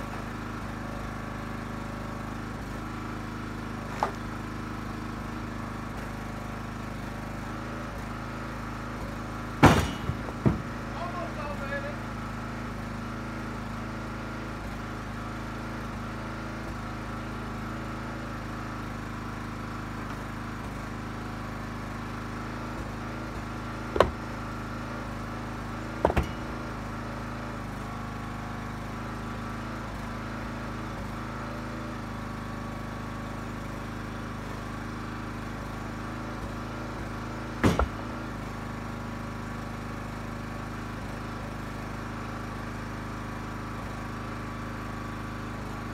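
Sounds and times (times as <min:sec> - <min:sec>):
log splitter engine running: 0:00.0 - 0:45.9
sharp knocks: 0:09.6 - 0:10.8, 0:26.0 - 0:26.5, 0:37.6 - 0:38.2.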